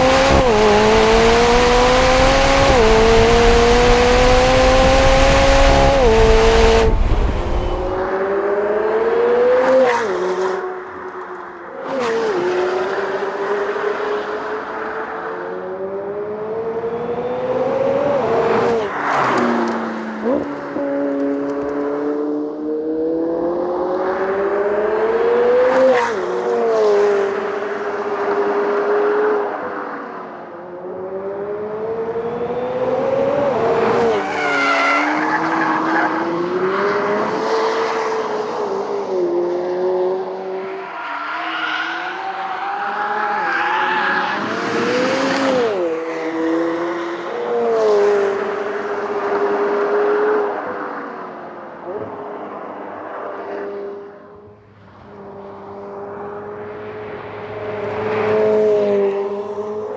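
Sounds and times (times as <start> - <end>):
car engine accelerating hard: 0.0 - 10.6.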